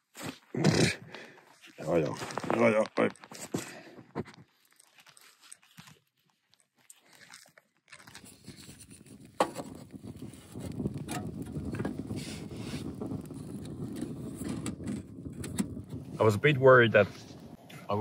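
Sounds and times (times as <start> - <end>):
wood fire rushing and crackling: 0.2 - 4.5, 8.1 - 18.0
firewood knocking in stove: 10.7 - 12.1.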